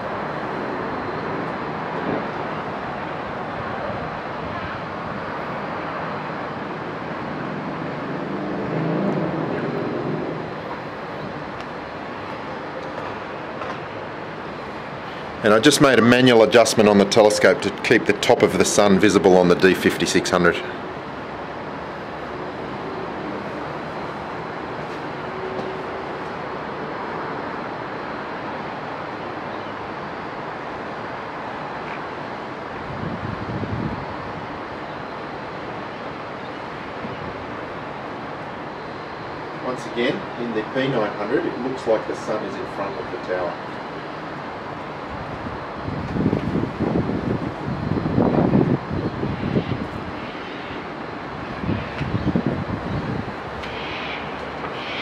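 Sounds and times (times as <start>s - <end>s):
outdoor background noise: 0.0s - 55.0s
engine passing: 6.2s - 12.2s.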